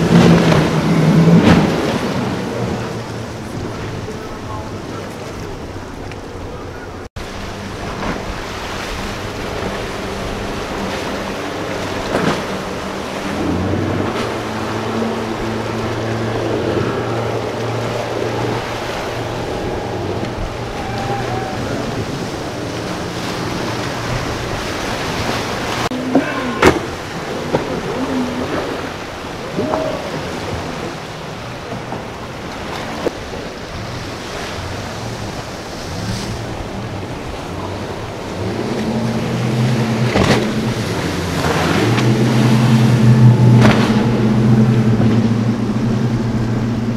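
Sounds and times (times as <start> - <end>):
breaking waves and spray: 0.0 - 46.9
outboard boat engines droning: 0.0 - 46.9
wind on microphone: 7.6 - 32.1.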